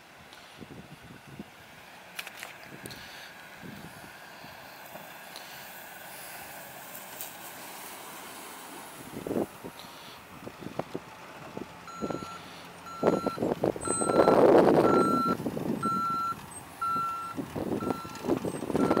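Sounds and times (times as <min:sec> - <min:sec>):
vehicle backup alarm beeping: 0:11.9 - 0:19.0.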